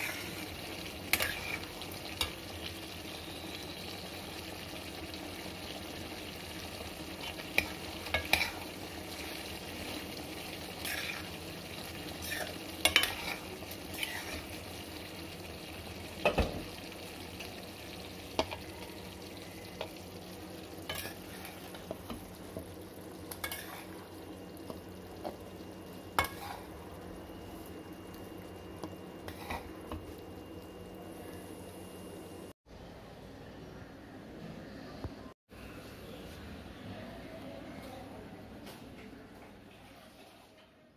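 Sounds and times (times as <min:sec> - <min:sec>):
spatula scraping curry in pan: 0:00.0 - 0:01.8, 0:07.6 - 0:08.8, 0:10.7 - 0:11.4, 0:12.1 - 0:14.6, 0:20.9 - 0:22.2, 0:23.3 - 0:24.0, 0:26.2 - 0:26.8, 0:29.2 - 0:30.0
steady sizzle: 0:00.0 - 0:32.6.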